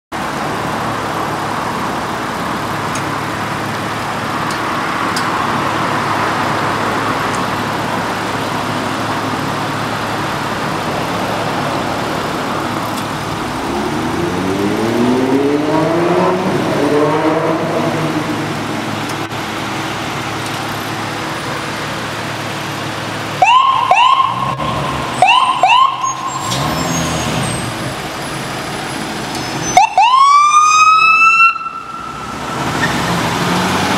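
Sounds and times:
traffic hum: 0.1s - 33.9s
heavy engine revving: 0.4s - 29.7s, 32.0s - 33.9s
fire engine warning blasts: 23.4s - 33.0s.

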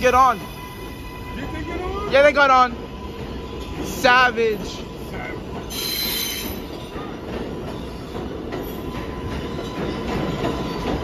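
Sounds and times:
subway wheels rumbling on rail: 0.0s - 11.0s
high-pitched wheel squeal: 5.7s - 6.7s.

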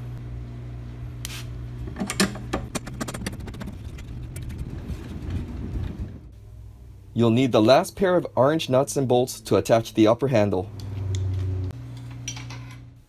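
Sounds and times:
steady low hum: 0.0s - 13.0s
metal parts clicking and tapping: 1.9s - 3.3s.

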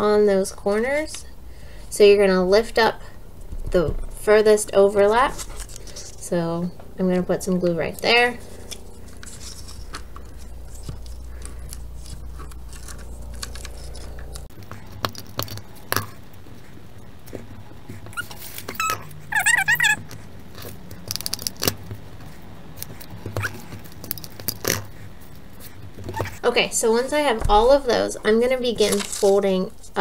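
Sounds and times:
low hum: 0.0s - 30.0s
paper strips rustling: 4.9s - 6.2s, 7.9s - 26.4s, 27.0s - 29.9s.

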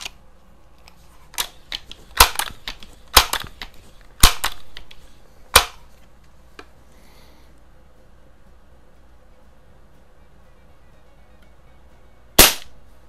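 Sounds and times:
metallic clacks of air rifle: 1.3s - 5.8s.

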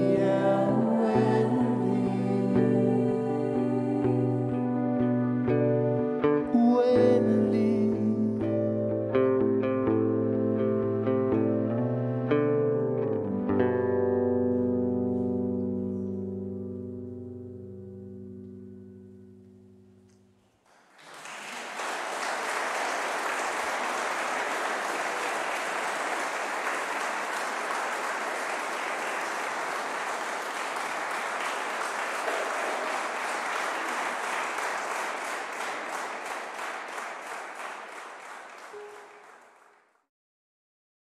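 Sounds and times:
audience applause: 20.6s - 39.9s.

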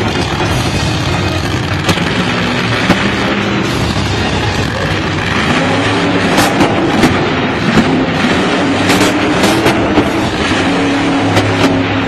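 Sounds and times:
monster truck engine revving: 0.0s - 12.0s
sharp irregular bangs: 0.0s - 12.0s.

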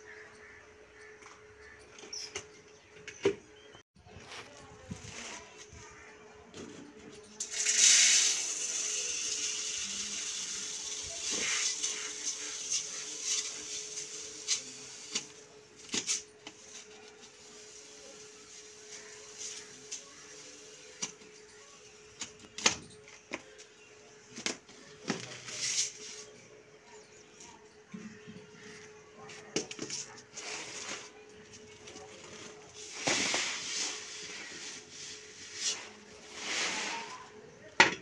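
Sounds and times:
grain pouring into metal pot: 7.4s - 15.4s, 35.4s - 37.3s.

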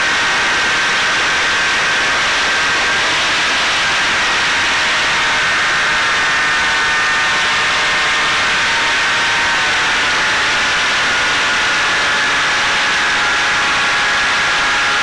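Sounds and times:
drone motor high whine: 0.0s - 15.0s.

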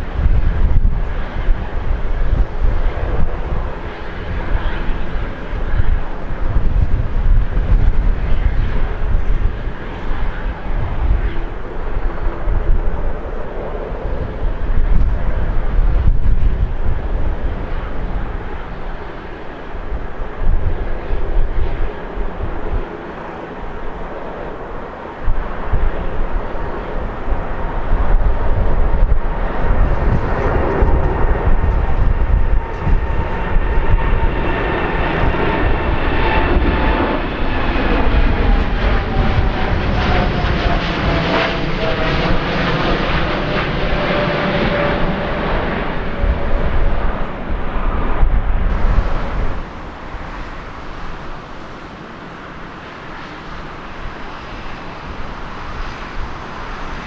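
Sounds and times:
jet airliner engine noise: 0.0s - 57.0s.

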